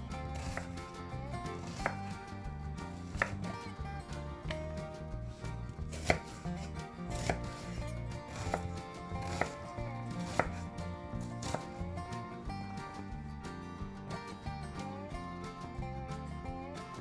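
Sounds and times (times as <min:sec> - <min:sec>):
knife chopping on wooden board: 0:00.1 - 0:02.2, 0:02.9 - 0:03.6, 0:04.4 - 0:12.0.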